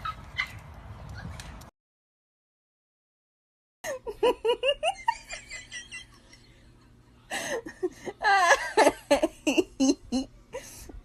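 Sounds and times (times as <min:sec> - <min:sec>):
person giggling: 0:03.8 - 0:06.5, 0:07.4 - 0:10.8
high wavering laugh: 0:03.8 - 0:06.7, 0:07.6 - 0:10.8.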